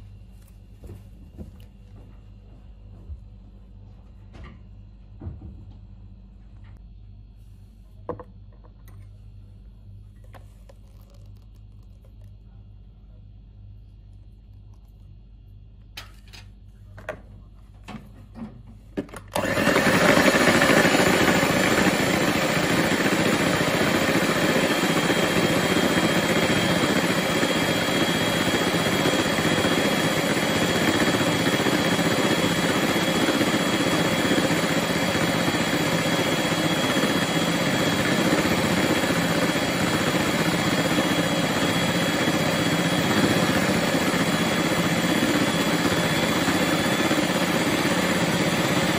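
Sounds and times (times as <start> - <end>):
electric hand mixer whisking: 19.4 - 48.9.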